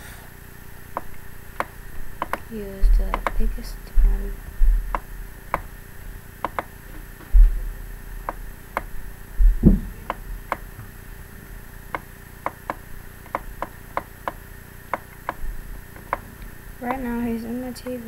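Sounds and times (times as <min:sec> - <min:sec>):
low thumps: 0:00.8 - 0:18.0
computer mouse clicking: 0:01.0 - 0:03.6, 0:06.4 - 0:06.7, 0:11.9 - 0:17.0.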